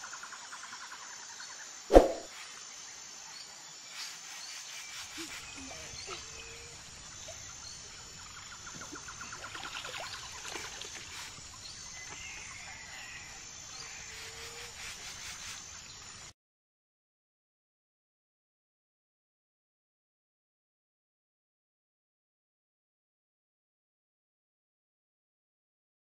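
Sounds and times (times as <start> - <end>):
insect trill: 0.0 - 16.3.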